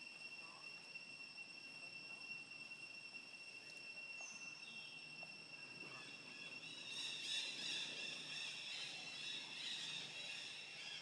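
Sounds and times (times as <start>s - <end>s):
insects droning high-pitched: 0.0s - 11.0s
rough insect chorus: 0.0s - 11.0s.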